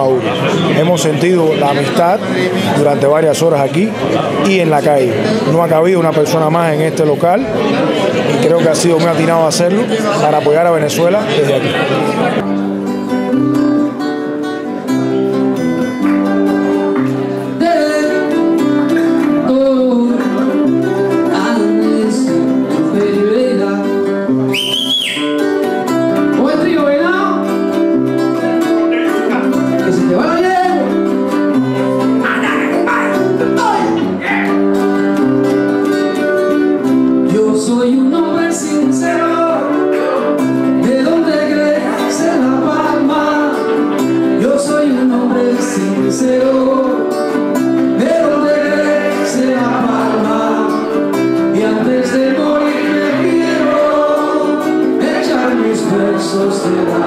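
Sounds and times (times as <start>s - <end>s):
acoustic-electric guitar strumming: 0.0s - 57.0s
small guitar plucking: 12.3s - 57.0s.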